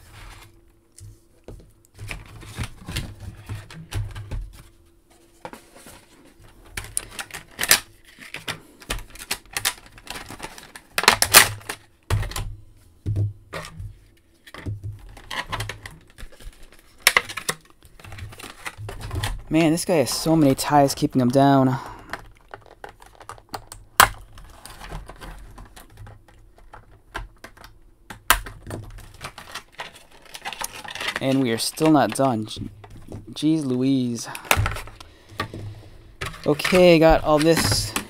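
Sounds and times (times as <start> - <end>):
cardboard and plastic packaging rustling: 0.0 - 38.0
plastic crackle: 5.8 - 12.4, 14.4 - 38.0.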